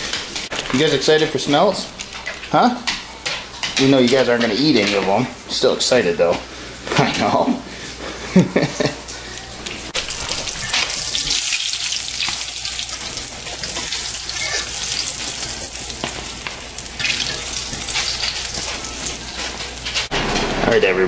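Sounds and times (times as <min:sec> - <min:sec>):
fish frying in hot oil: 0:09.5 - 0:20.1.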